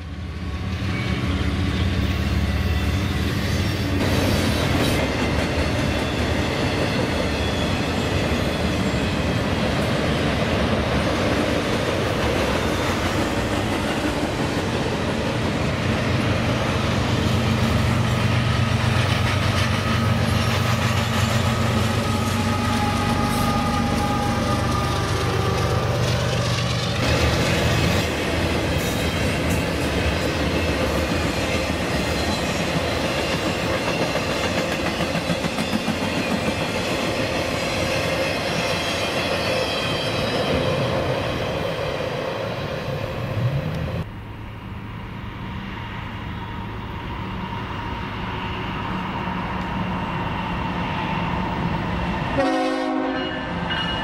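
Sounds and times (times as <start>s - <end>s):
train wheels clattering on rails: 1.8s - 42.1s
train horn chord: 52.4s - 53.6s.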